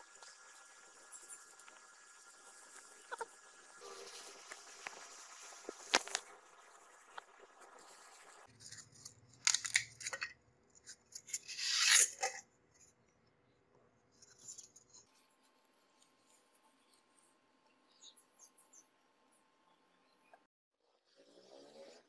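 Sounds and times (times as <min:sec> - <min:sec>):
polystyrene foam squeaking: 0:03.0 - 0:10.3, 0:10.9 - 0:12.4.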